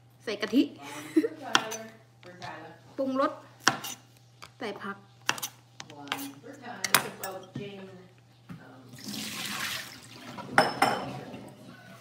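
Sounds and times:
knife chopping on wooden board: 0:01.5 - 0:01.8, 0:03.6 - 0:04.0, 0:05.2 - 0:07.1
running water: 0:08.9 - 0:11.7.

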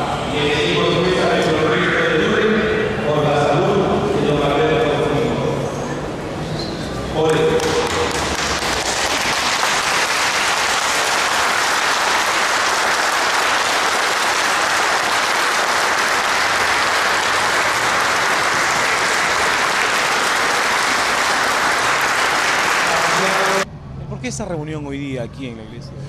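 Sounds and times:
crowd applauding: 0:07.2 - 0:23.6.

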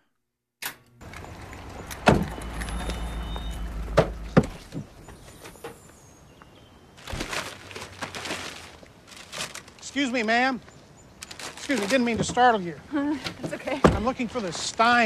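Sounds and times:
car engine humming: 0:01.0 - 0:06.4
car door shutting: 0:01.1 - 0:05.8.

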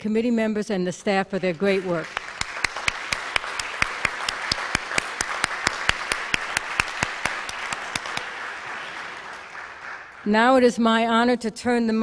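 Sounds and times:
audience applauding: 0:01.4 - 0:10.7
close hand claps: 0:01.5 - 0:10.4.

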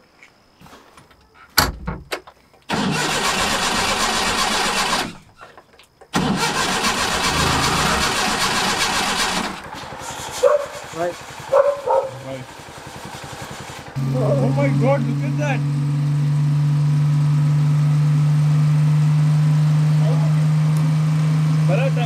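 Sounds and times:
vehicle engine running: 0:06.2 - 0:22.0.

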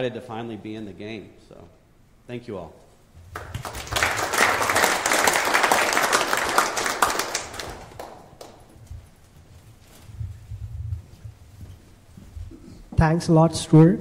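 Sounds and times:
audience applauding: 0:03.3 - 0:08.8.

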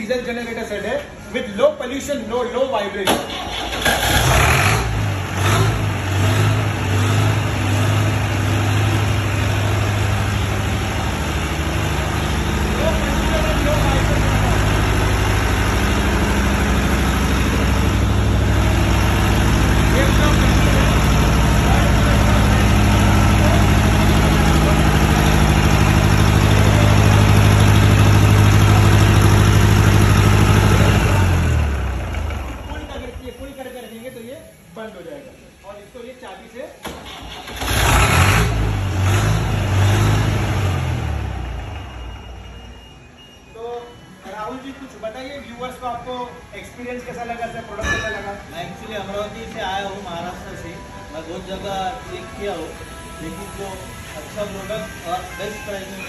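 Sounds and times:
diesel generator running: 0:03.1 - 0:34.7, 0:36.8 - 0:44.0.

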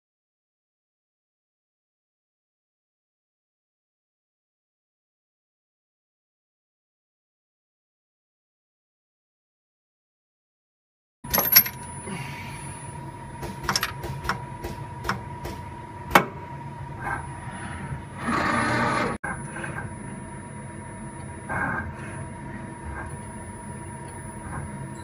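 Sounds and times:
grinder machine whine: 0:11.3 - 0:25.0
mechanical clicks and clunks: 0:13.4 - 0:17.3.

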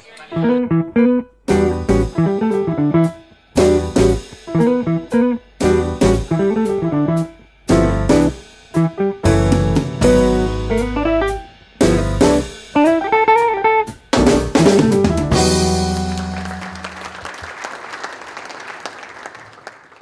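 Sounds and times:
theme music with drums and guitar: 0:01.5 - 0:16.9.

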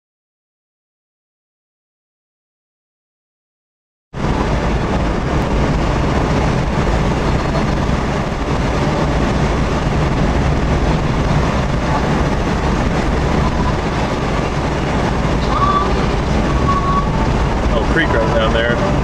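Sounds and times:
car cabin road and engine noise: 0:04.2 - 0:19.0.

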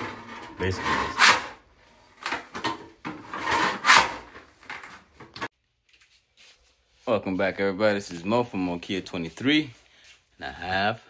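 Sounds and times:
scraper scraping floor tile: 0:00.0 - 0:01.6, 0:03.1 - 0:05.5.

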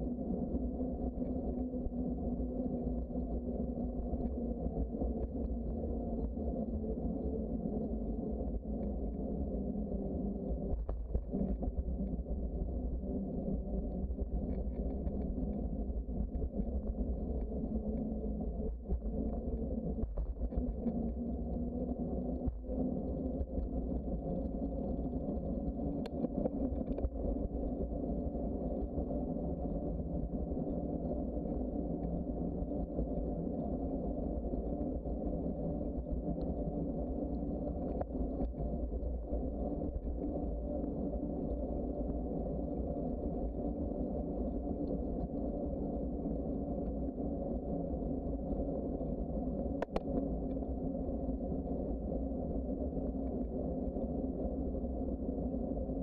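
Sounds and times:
wind rumble on microphone: 0:00.0 - 0:56.0
faint clicks: 0:49.8 - 0:50.6.

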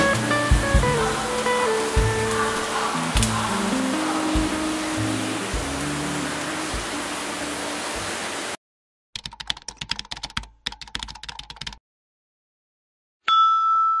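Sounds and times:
hissing background track: 0:00.0 - 0:08.6
keyboard typing clicks: 0:09.2 - 0:11.8
bell-like ding: 0:13.2 - 0:14.0.

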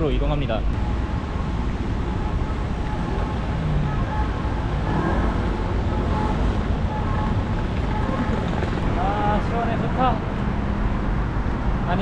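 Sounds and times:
street traffic: 0:00.0 - 0:12.0
wind buffeting microphone: 0:04.8 - 0:11.7.

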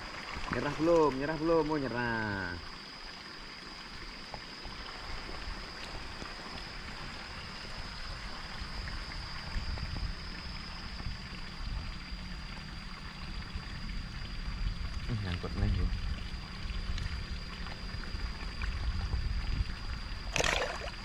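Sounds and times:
water spilling into pond: 0:00.0 - 0:21.0
small splashes: 0:20.2 - 0:21.0.

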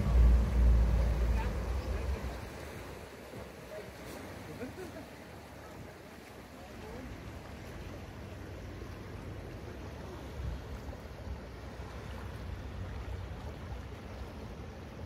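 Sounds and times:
low engine rumble: 0:00.0 - 0:05.5
propeller wash churning water: 0:00.0 - 0:15.0.

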